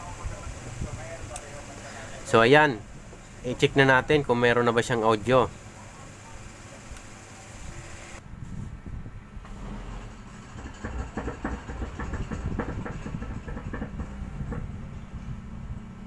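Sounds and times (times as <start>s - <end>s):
speakers humming: 0.0s - 8.2s.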